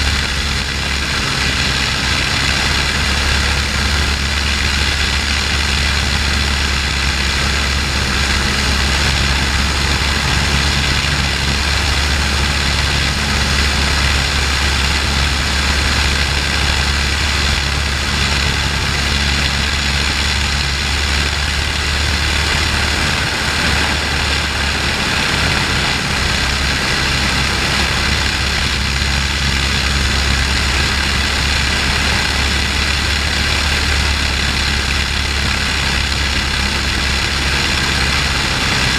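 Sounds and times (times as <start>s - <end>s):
propeller plane engine droning: 0.0s - 38.9s.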